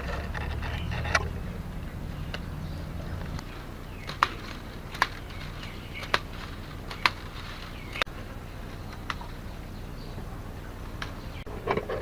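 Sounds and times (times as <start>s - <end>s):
scissors snipping bamboo strips: 4.0s - 8.1s.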